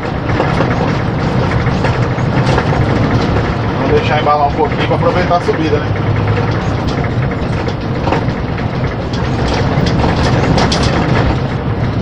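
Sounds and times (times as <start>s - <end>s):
cab and load rattling: 0.0s - 12.0s
diesel truck engine under load: 0.0s - 12.0s.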